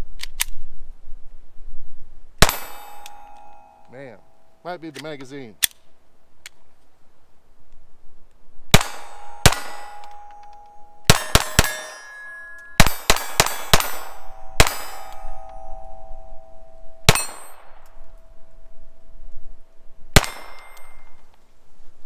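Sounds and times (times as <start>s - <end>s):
pistol shots: 2.4s - 3.6s, 8.7s - 15.6s, 17.1s - 17.8s, 20.2s - 21.0s
steel targets ringing: 2.4s - 4.8s, 8.8s - 19.0s, 20.2s - 21.2s.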